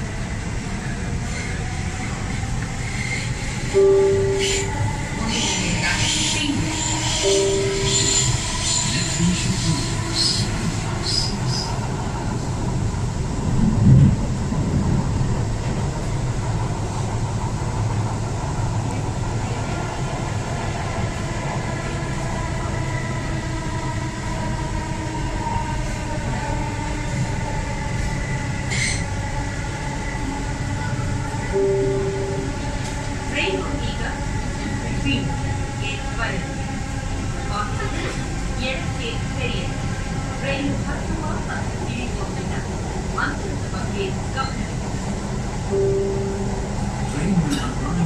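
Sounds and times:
train wheels rumbling on rail: 0:00.0 - 0:48.0
short beep: 0:03.8 - 0:04.8, 0:07.2 - 0:08.5, 0:31.6 - 0:32.6, 0:45.8 - 0:46.6.

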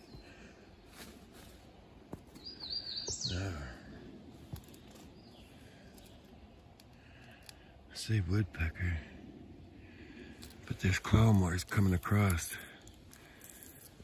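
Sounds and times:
man's low voiced sound: 0:03.2 - 0:04.0.

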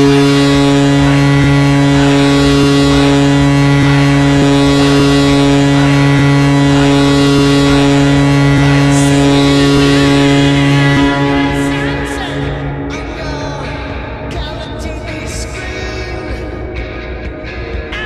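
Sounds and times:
air horn blast: 0:00.0 - 0:14.0.

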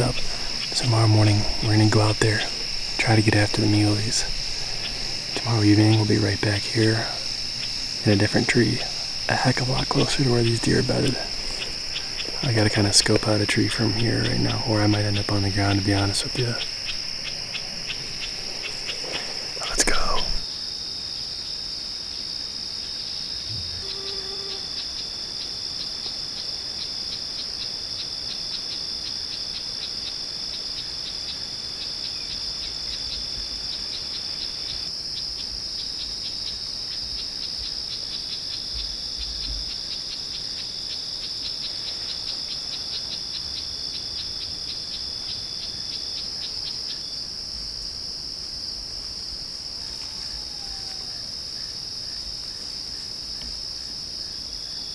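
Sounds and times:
insects droning: 0:00.0 - 0:54.9
rapidly pulsing insect trill: 0:00.0 - 0:54.9.

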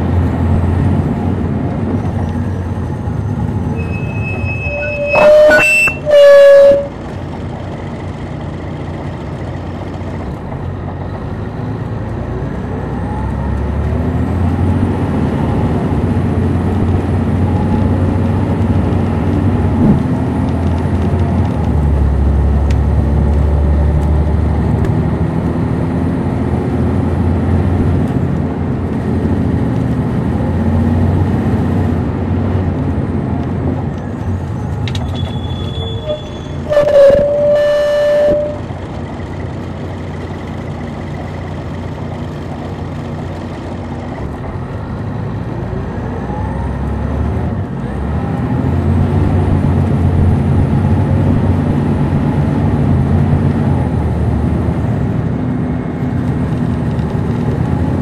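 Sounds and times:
bus engine running: 0:00.0 - 0:58.0
short loud tone: 0:03.8 - 0:07.0, 0:35.2 - 0:38.7.

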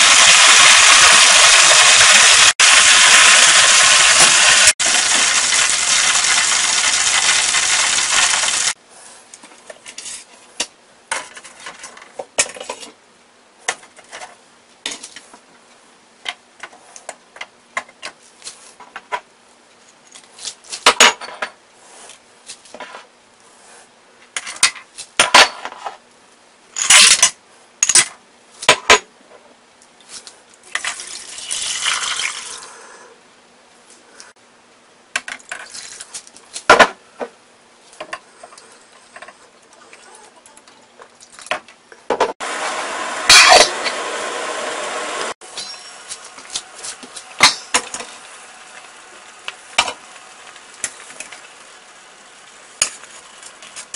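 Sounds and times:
chicken sizzling in hot oil: 0:00.0 - 0:08.8, 0:30.9 - 0:32.8, 0:42.4 - 0:53.9
water pouring into pot: 0:00.0 - 0:08.8, 0:30.8 - 0:32.7
spices and utensils clinking in pot: 0:45.4 - 0:51.5, 0:52.8 - 0:53.9.

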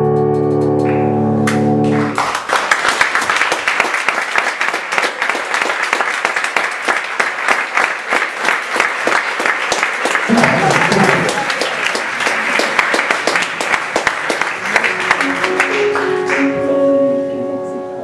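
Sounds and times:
audience applauding: 0:01.5 - 0:16.9
held musical chord: 0:14.5 - 0:18.0.

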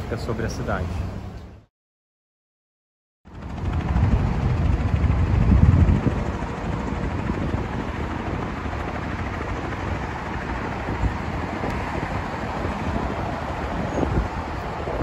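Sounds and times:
road traffic noise: 0:00.0 - 0:01.7, 0:05.4 - 0:15.0
wind on microphone: 0:03.3 - 0:15.0.

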